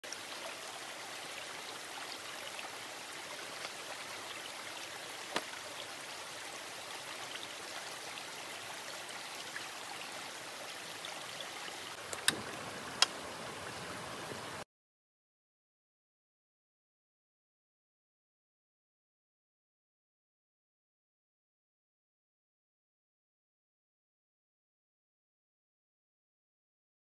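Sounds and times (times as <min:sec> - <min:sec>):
running water hiss: 0:00.0 - 0:14.6.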